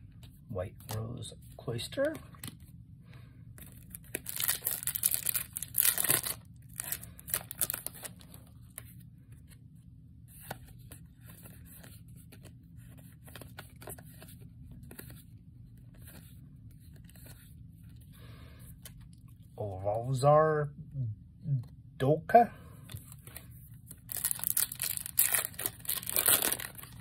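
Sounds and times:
cards rustling and clicking: 0.2 - 2.8, 3.5 - 9.7, 10.3 - 18.1, 22.8 - 27.0
foil pack tearing: 4.1 - 7.9, 24.1 - 27.0.

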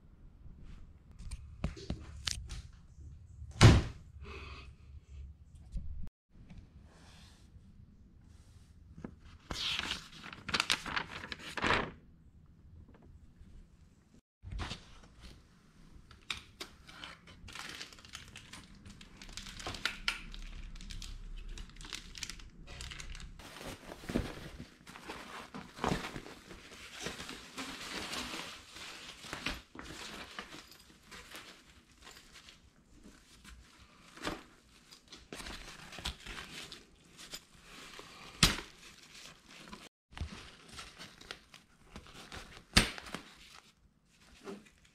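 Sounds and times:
nylon fabric rustling: 23.1 - 33.6.

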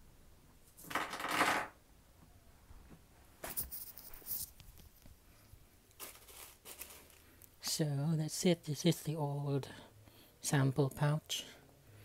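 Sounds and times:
packaging and fabric rustling: 5.9 - 7.5.

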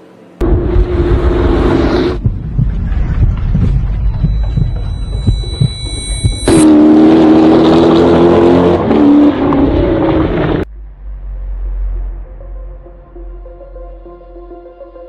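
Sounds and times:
quiet low rumble: 0.4 - 6.6, 10.6 - 14.5
loud car engine revving hard: 6.5 - 10.7.

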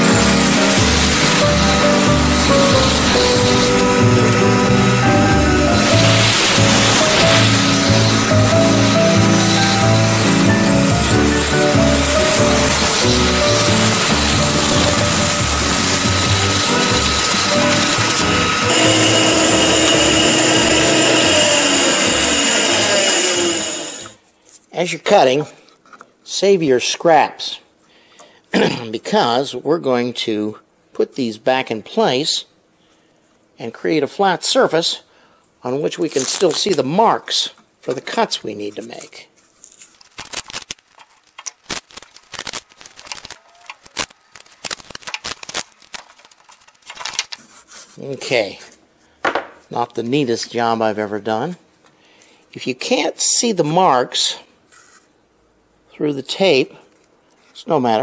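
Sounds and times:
band saw cutting wood: 0.0 - 24.2
masking tape ripping: 0.0 - 24.2, 36.0 - 36.9, 39.6 - 47.8.

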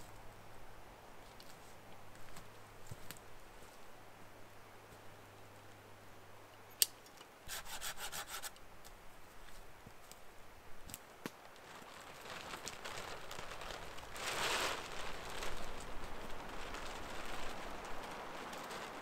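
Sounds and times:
plastic tarp rustling and scraping: 11.4 - 19.0.

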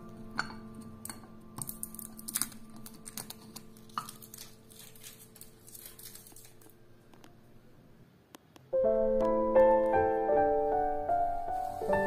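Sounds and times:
plastic wrapping crinkling: 1.6 - 7.4, 11.4 - 12.0.

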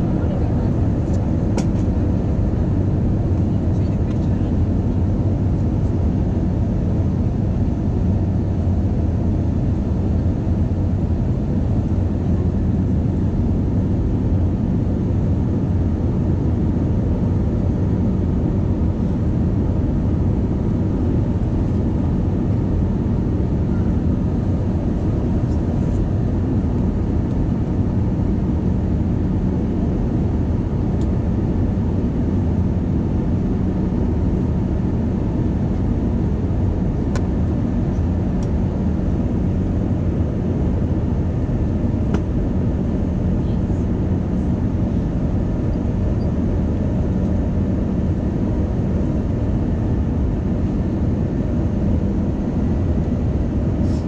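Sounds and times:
jet airliner cabin rumble: 0.0 - 54.0.

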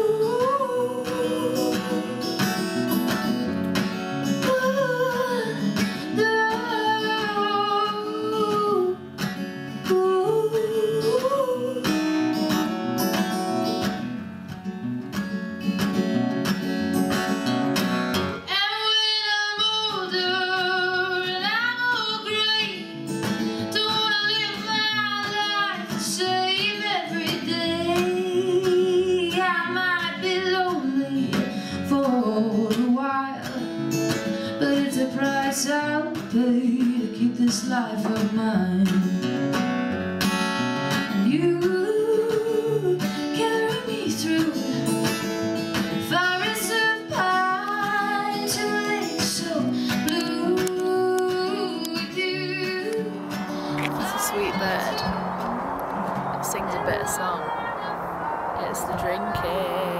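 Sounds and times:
woman singing: 0.0 - 3.0, 4.1 - 12.7, 18.5 - 23.0, 23.6 - 39.2, 41.1 - 45.4, 46.0 - 54.6
acoustic guitars playing: 0.0 - 59.9.

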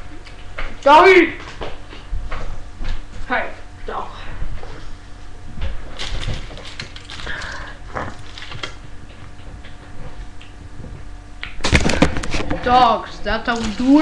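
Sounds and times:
irregular knocks and rustles: 1.4 - 3.3, 8.3 - 11.1.

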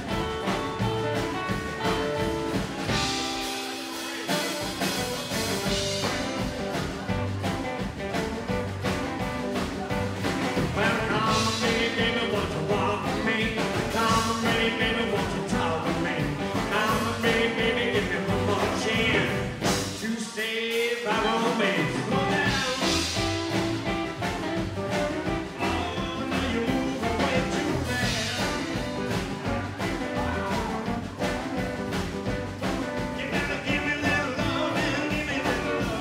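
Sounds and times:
drums: 0.0 - 36.0
man singing: 10.3 - 24.0, 25.0 - 31.0, 32.9 - 36.0.

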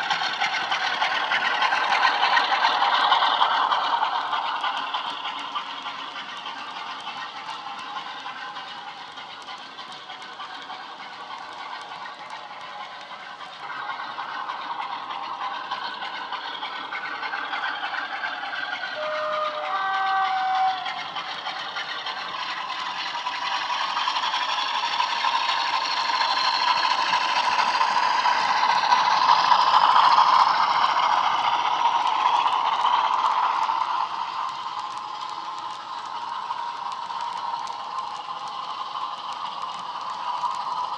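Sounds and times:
model wheels rattling on track: 0.0 - 40.9
diesel engine from small speaker: 16.2 - 23.4
two-note horn: 19.0 - 20.8.

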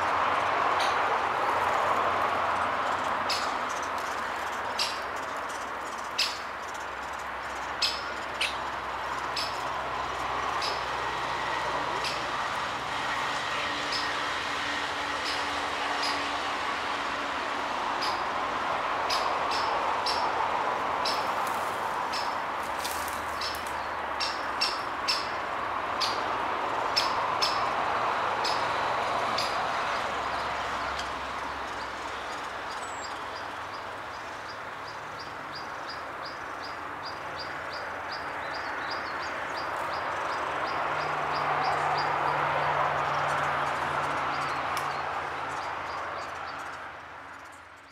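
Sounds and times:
woodpecker sharp calls: 3.2 - 9.7, 10.5 - 11.0, 11.9 - 12.4, 13.8 - 14.2, 17.9 - 18.3, 19.0 - 27.8, 28.4 - 29.6.

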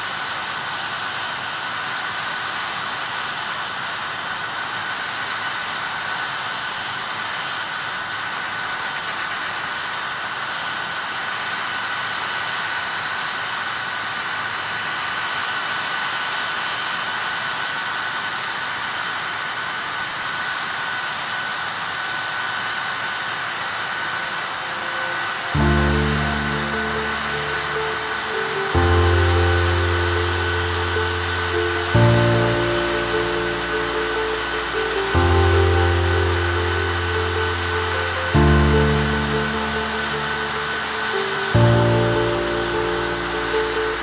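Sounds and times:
jet engines whining: 23.1 - 44.0.

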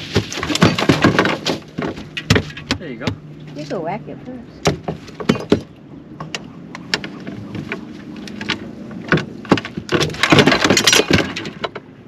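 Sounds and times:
boat engine humming: 1.6 - 9.9.

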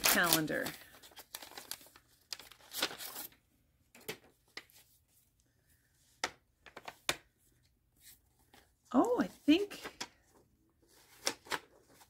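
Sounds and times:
paper rustling: 0.0 - 3.4, 8.0 - 12.0.

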